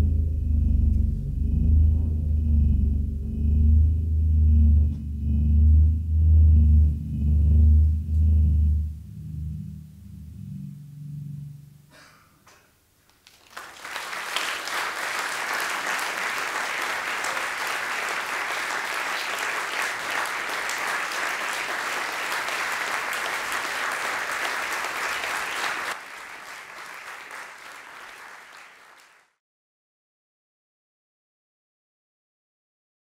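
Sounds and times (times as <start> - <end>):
audience applauding: 13.1 - 29.4.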